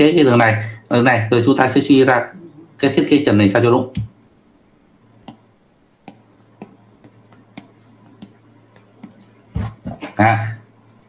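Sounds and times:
low steady hum: 0.0 - 11.0
stylus tapping on tablet: 5.2 - 10.0.

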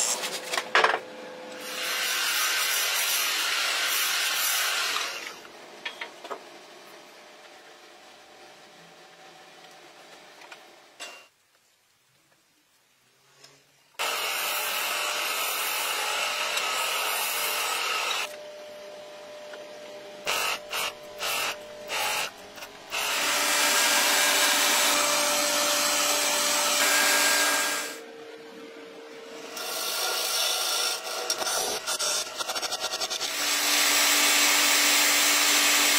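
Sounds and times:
turning tool cutting wood: 14.0 - 18.3, 20.3 - 28.0, 29.4 - 35.9
wood lathe running: 22.9 - 28.0, 29.5 - 31.4, 33.2 - 35.9.

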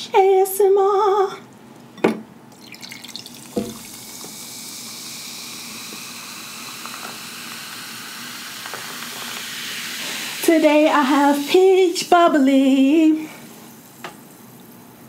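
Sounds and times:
carbonation fizzing hiss: 2.5 - 15.0
can opening pop: 3.4 - 4.4, 5.7 - 9.9.

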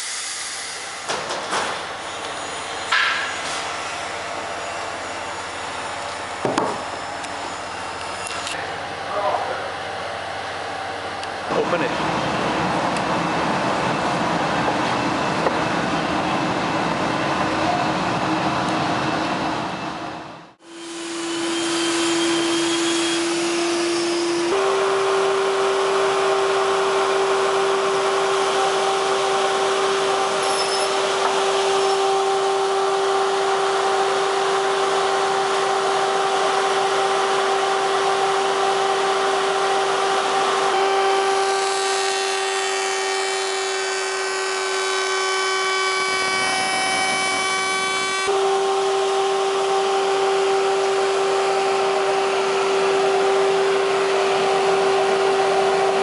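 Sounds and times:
woodworking machine whining: 20.6 - 56.0.

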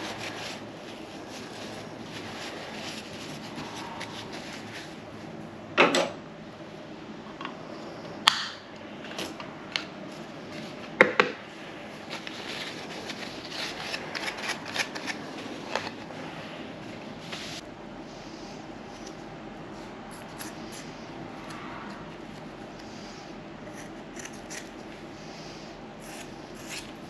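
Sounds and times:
paper towel rustling: 0.0 - 5.4, 10.0 - 17.6.

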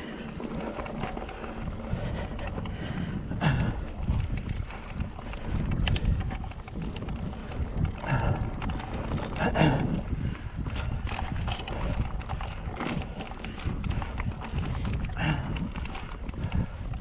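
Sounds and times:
mountain bike clattering: 0.0 - 17.0
wind buffeting microphone: 0.0 - 17.0.

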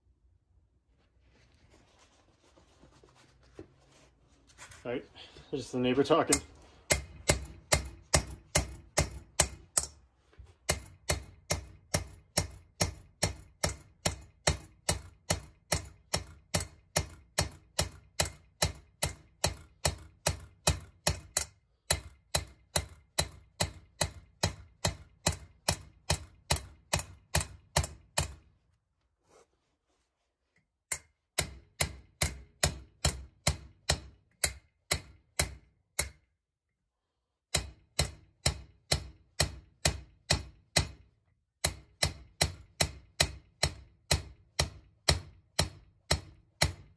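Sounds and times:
hammer striking metal punch: 6.2 - 10.0, 10.7 - 28.4, 31.4 - 36.2, 37.5 - 41.0, 41.6 - 46.9.

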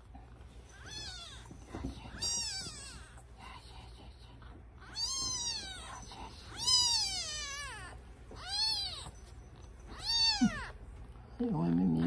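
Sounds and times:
kitten mewing: 2.2 - 3.1, 4.8 - 9.1, 9.9 - 10.8.

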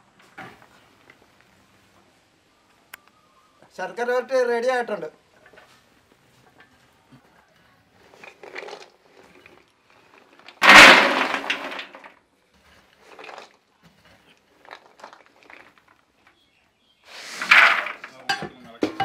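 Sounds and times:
fried pieces poured into pot: 10.5 - 12.1, 17.1 - 18.1
steel bowl scraping pan: 17.1 - 18.4.

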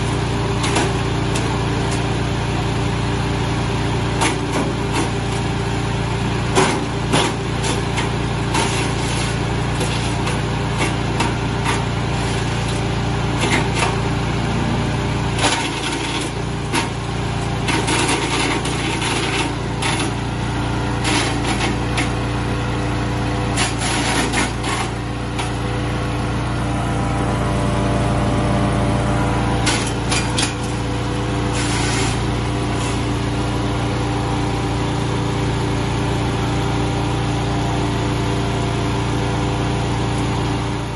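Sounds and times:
chipper shredder running: 0.0 - 40.9
material cracking inside shredder: 6.4 - 14.2, 15.2 - 22.6, 23.4 - 25.7, 29.5 - 33.4.

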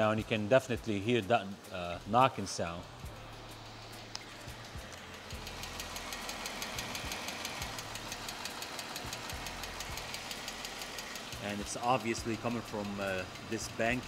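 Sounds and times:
engine hum: 1.5 - 14.0
rapid ticking knock from engine: 4.5 - 14.0.

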